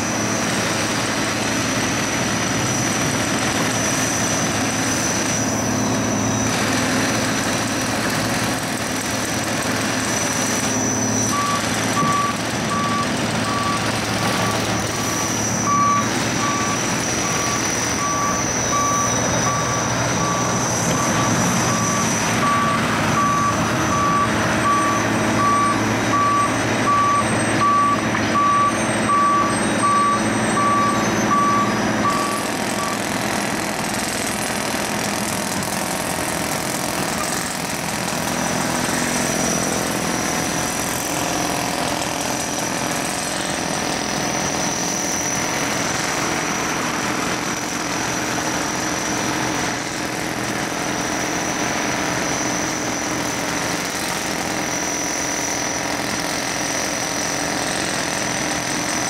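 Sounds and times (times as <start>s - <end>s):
diesel loader engine running: 0.0s - 59.0s
heavy machinery running: 0.0s - 59.0s
high steady whine: 9.6s - 33.2s
reversing alarm beeping: 10.5s - 33.2s.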